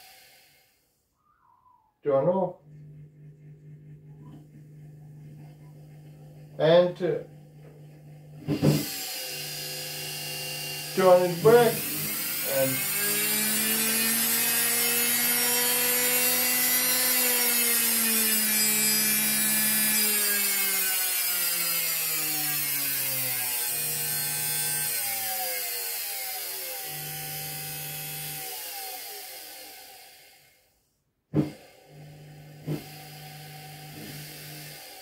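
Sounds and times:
electric motor whining: 2.5 - 30.5, 31.4 - 35.0.

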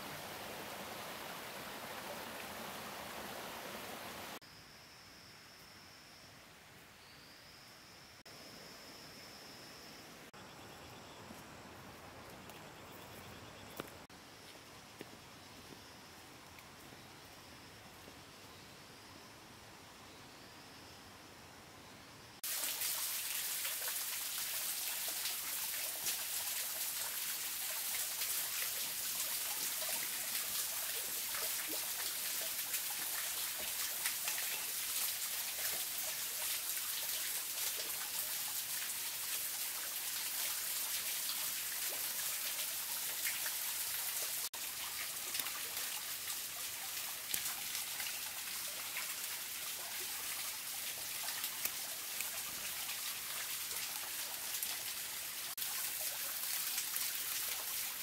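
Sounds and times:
steady rain: 0.0 - 4.4.

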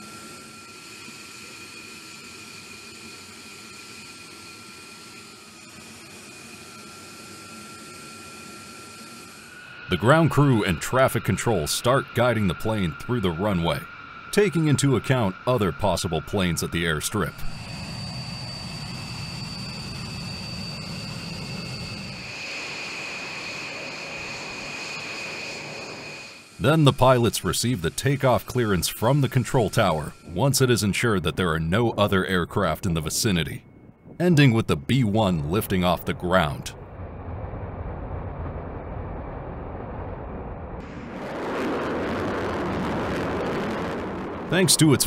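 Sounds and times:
faint high whine: 0.0 - 45.0
low jet rumble: 9.4 - 45.0.

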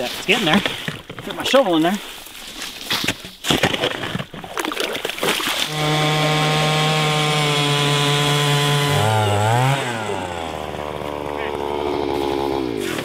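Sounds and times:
shovel scraping slush: 0.0 - 6.0, 11.0 - 13.0
power ice auger drilling: 3.5 - 13.0.

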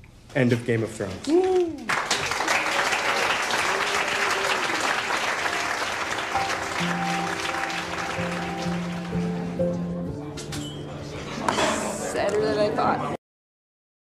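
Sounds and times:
crowd applauding: 1.4 - 9.7
background music with held notes: 5.3 - 13.2.

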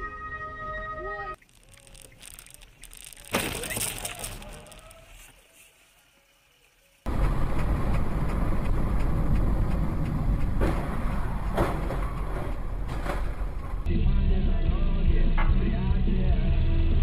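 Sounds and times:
car driving on wet road: 7.1 - 13.8.

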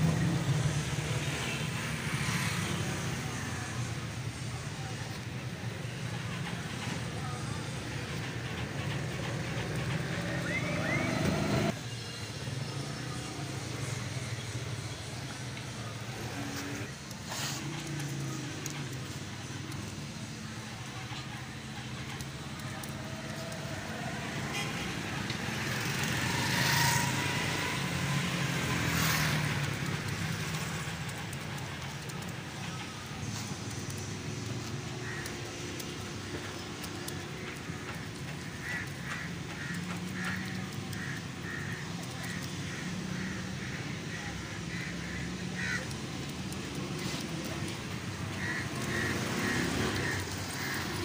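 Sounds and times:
road traffic engine hum: 0.0 - 51.0
vehicles passing: 0.0 - 51.0.

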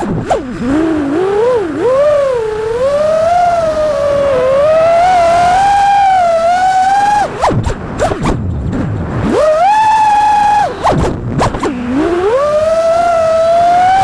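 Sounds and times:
drone motors whining: 0.0 - 14.0.

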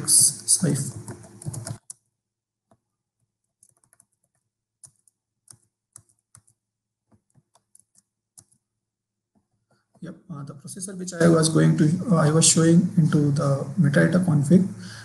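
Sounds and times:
computer keyboard typing: 0.8 - 2.1, 2.7 - 8.7.

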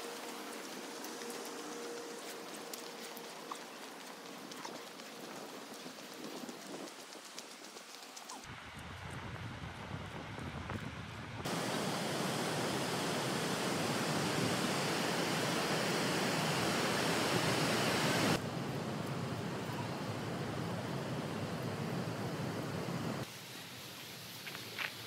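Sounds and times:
river water pouring over weir: 11.5 - 18.4.

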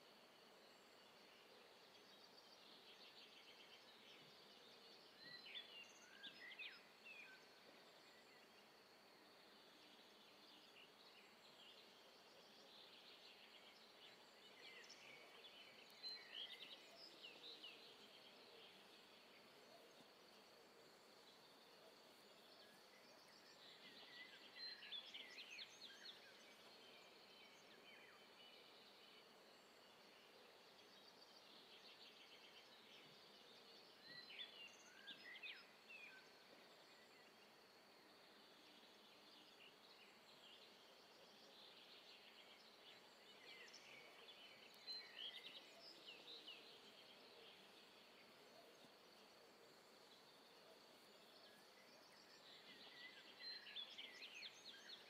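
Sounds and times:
low steady background noise: 0.0 - 55.0
bird chirping: 38.1 - 49.4, 50.0 - 55.0.

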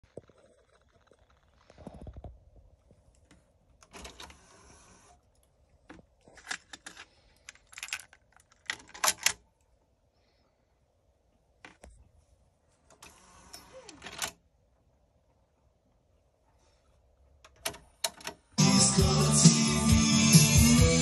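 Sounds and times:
plastic clicks and clatters: 5.9 - 9.4.

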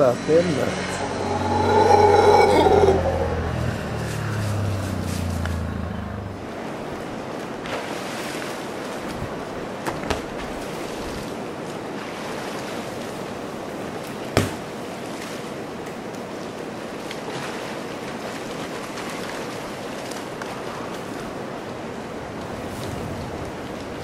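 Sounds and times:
steady rushing noise: 0.0 - 7.7.

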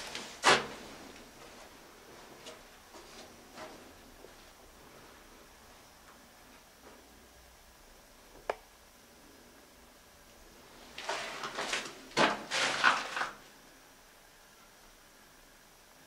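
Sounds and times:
rustling and clattering: 10.8 - 13.5.

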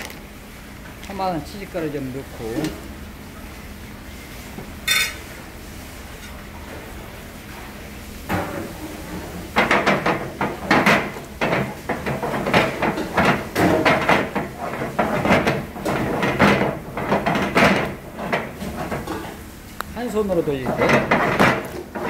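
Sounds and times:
metal pan clanking and scraping on grate: 4.9 - 5.2.

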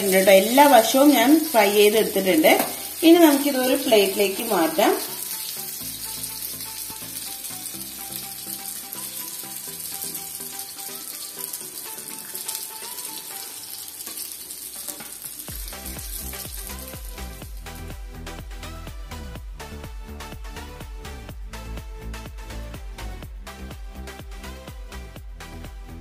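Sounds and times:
fish sizzling in oil: 0.0 - 19.0.

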